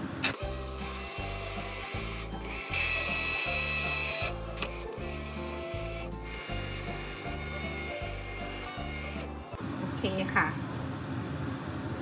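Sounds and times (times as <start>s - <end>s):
immersion blender motor whine: 0.3s - 9.6s.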